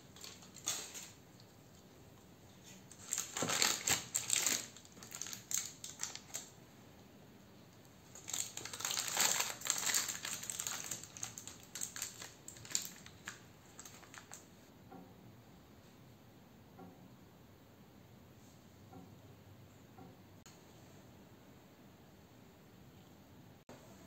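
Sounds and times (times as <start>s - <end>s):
baking paper crinkling: 0.0s - 1.5s, 2.6s - 6.5s, 8.0s - 14.6s.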